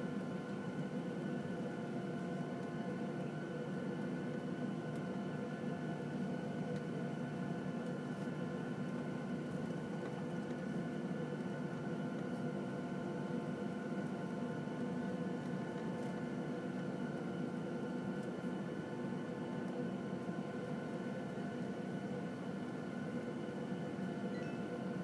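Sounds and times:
jet engines idling in cabin: 0:00.0 - 0:25.0.

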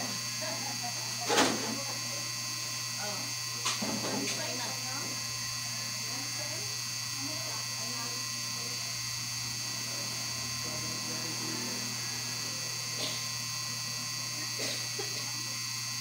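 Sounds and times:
electrical hum with high whine: 0:00.0 - 0:16.0.

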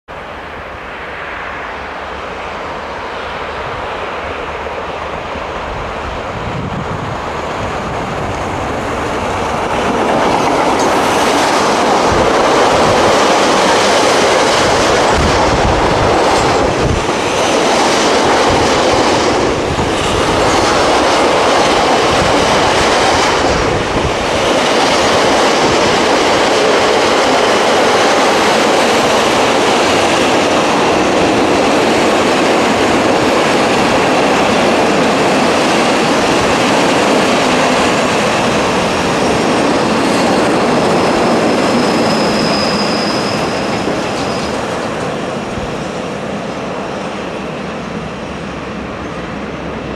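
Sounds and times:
high wheel squeal: 0:40.0 - 0:44.8.

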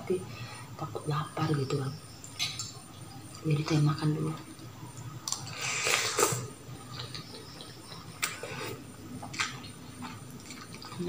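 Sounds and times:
noodles being slurped: 0:05.3 - 0:11.0.

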